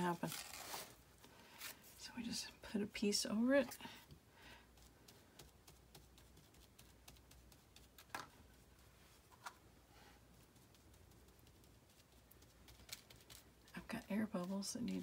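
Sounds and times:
paintbrush dabbing glue on paper: 0:04.0 - 0:09.0, 0:10.3 - 0:15.0.

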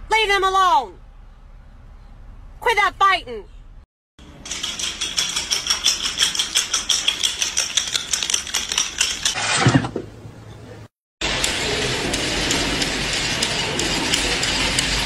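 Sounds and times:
bird claws tapping on tiles: 0:04.5 - 0:09.4.

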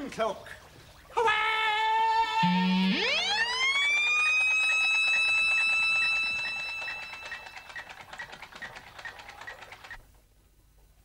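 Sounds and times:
electronic whine: 0:02.4 - 0:08.1
faint pulsing beep: 0:04.6 - 0:07.9.

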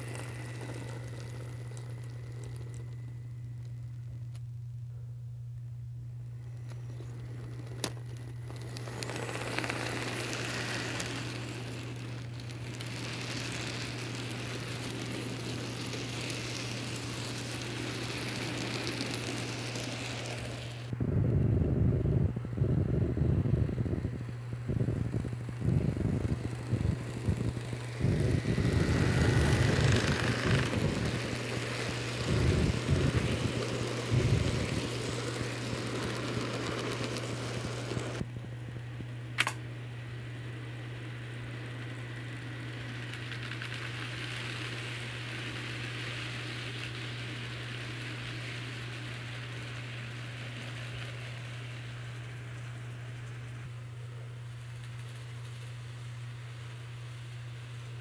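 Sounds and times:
steady low hum: 0:00.0 - 0:58.0
model train wheels clattering: 0:06.4 - 0:20.9, 0:24.7 - 0:38.2, 0:41.5 - 0:53.6.

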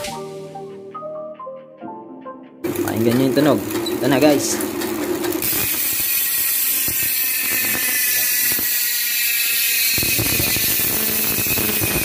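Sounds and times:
bicycle freehub buzzing: 0:02.7 - 0:12.0.

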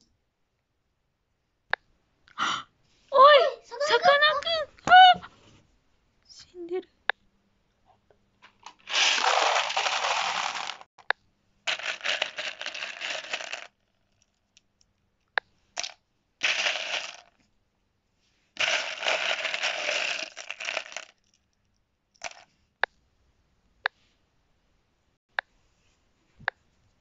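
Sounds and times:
plastic gems clattering into tub: 0:08.6 - 0:10.9, 0:11.7 - 0:13.8, 0:15.8 - 0:17.4, 0:18.6 - 0:21.3, 0:22.2 - 0:22.4.

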